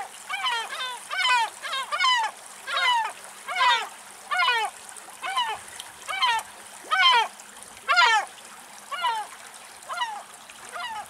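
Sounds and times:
gulls calling: 9.9s - 11.0s.

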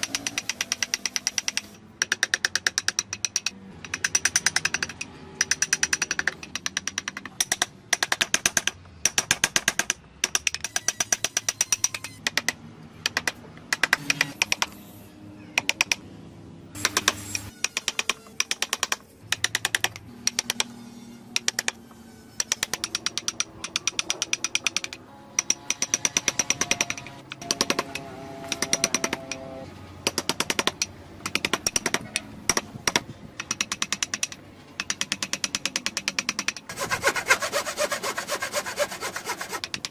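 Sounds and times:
chisel tapping into wood: 0.2s - 10.6s.

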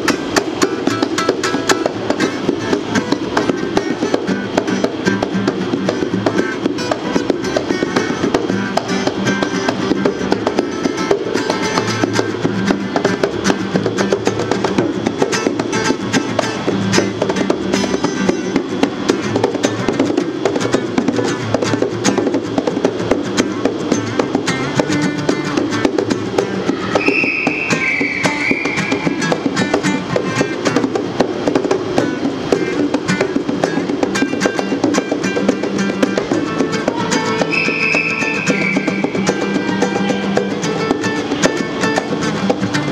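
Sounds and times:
acoustic guitar strumming chords: 0.0s - 42.9s
bongos played by hand: 0.0s - 42.9s.

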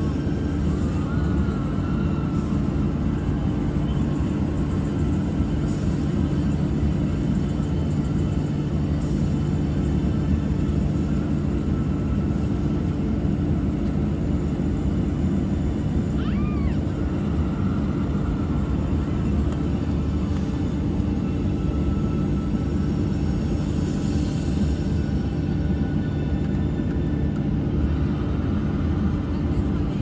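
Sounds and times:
jet engine cabin drone: 0.0s - 30.0s.

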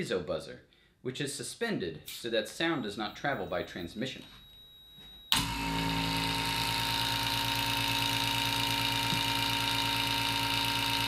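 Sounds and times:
vacuum pump humming: 5.3s - 11.0s.

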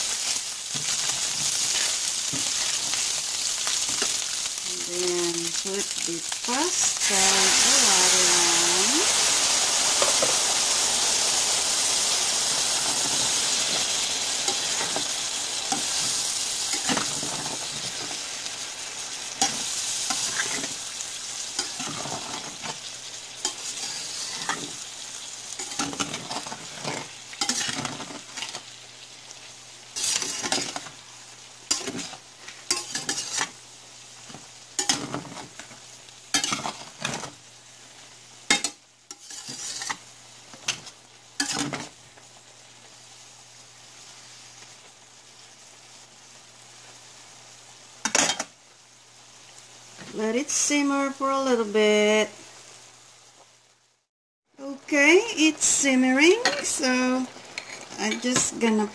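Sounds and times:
water sizzling in hot skillet: 0.0s - 58.9s
spatula scraping pan: 23.4s - 24.7s, 25.6s - 28.6s, 30.0s - 30.9s, 31.7s - 33.6s, 38.5s - 40.0s, 57.5s - 58.5s.

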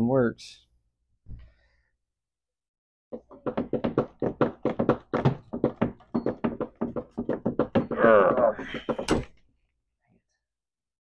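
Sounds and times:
rapid sharp knocks: 3.2s - 9.3s.

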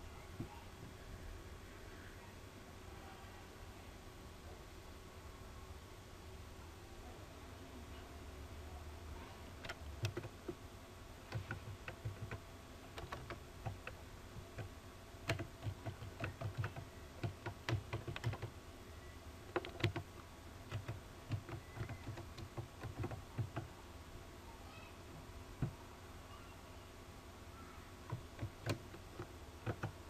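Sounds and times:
computer keyboard typing: 9.6s - 10.6s, 11.3s - 18.6s, 19.5s - 23.7s, 28.1s - 30.0s.

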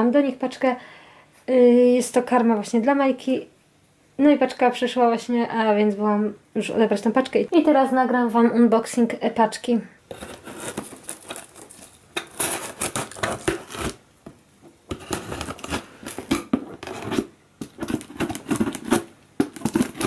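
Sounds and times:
tape and cardboard tearing: 10.1s - 14.0s, 14.9s - 20.0s.

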